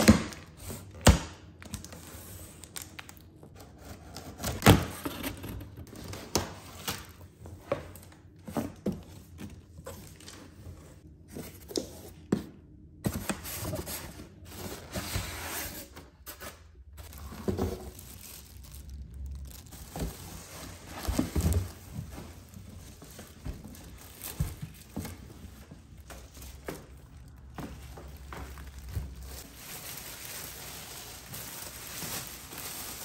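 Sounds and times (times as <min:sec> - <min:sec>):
plastic wrap crinkling: 0:16.9 - 0:33.0.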